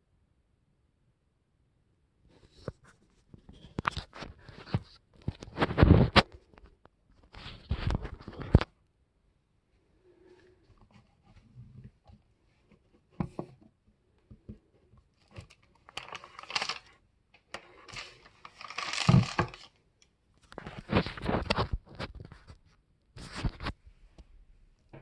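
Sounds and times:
paper peeling and rustling: 15.2 - 17.0, 17.6 - 19.8.

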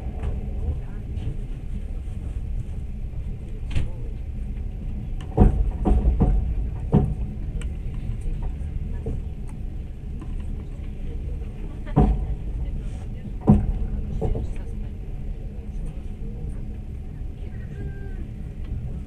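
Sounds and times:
train rumbling: 0.0 - 19.0
wheels knocking on rail joints: 5.2 - 7.6, 11.8 - 14.9.

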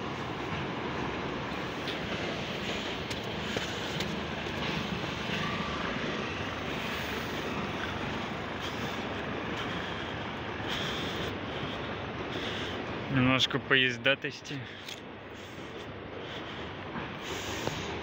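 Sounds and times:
train passing at speed: 0.0 - 18.0.

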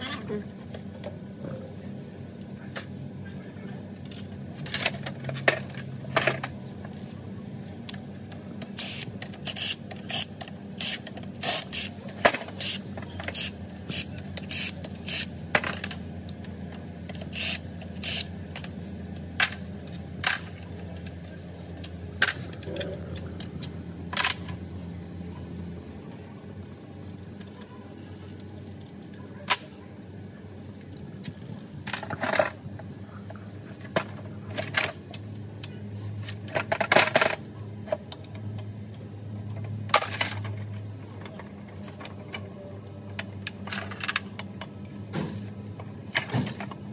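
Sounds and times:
steady low hum: 0.0 - 46.9.

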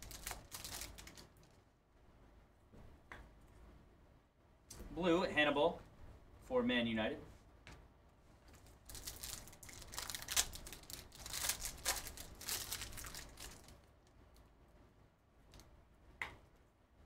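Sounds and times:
foil wrapper tearing and crinkling: 0.0 - 1.5, 8.6 - 13.8.

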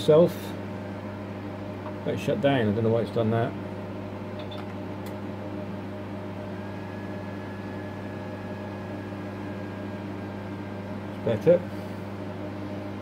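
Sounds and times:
electrical hum with fan noise: 0.0 - 13.0
faint high whine: 5.5 - 11.8.

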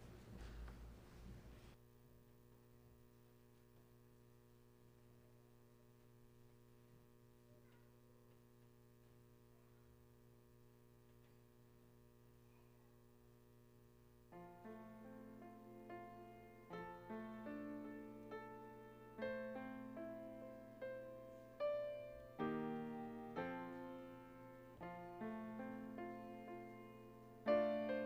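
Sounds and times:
shuffling noise: 0.0 - 1.8
faint electrical hum: 0.0 - 28.0.

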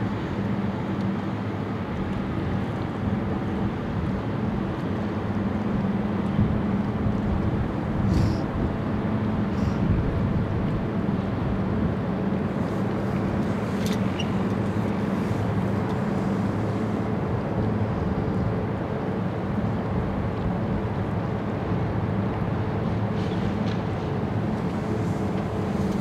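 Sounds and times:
ferry diesel engines droning: 0.0 - 26.0.

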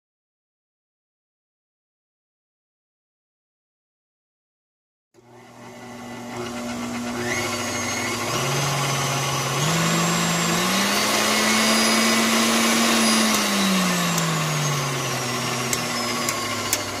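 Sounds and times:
stand mixer motor whirring: 5.2 - 17.0.

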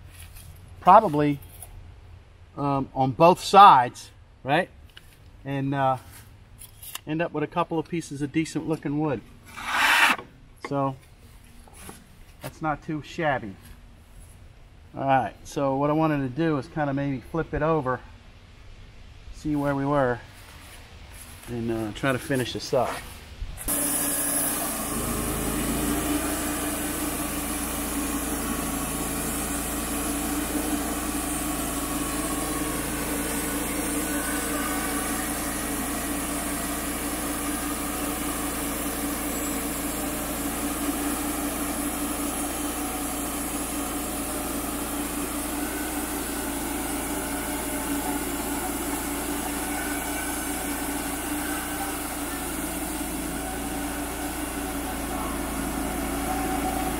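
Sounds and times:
sawmill engine running: 8.7 - 11.0, 21.1 - 56.9.

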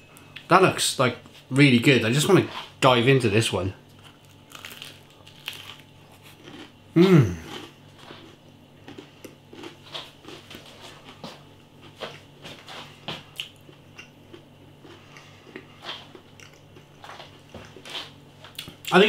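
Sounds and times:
faint steady hum: 0.0 - 19.0
person chewing crispy pastry: 3.9 - 18.9.

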